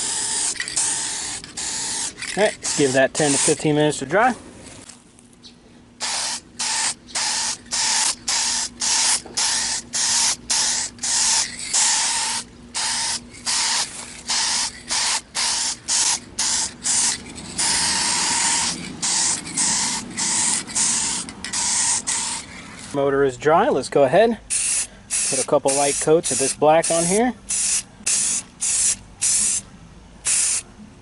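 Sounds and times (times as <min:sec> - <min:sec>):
aerosol spray can hissing: 0:00.0 - 0:03.6, 0:06.0 - 0:23.0, 0:24.5 - 0:29.6, 0:30.3 - 0:30.6.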